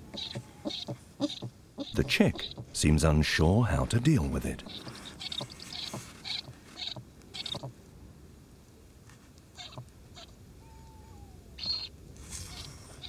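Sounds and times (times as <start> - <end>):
owl chick hissing calls: 0.1 - 2.7, 4.7 - 7.7, 11.6 - 13.0.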